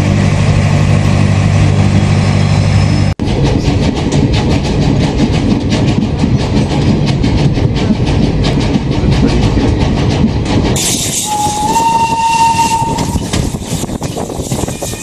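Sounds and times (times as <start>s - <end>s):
steam train clatter and rumble: 0.0s - 15.0s
steady whistle tone: 11.2s - 13.3s.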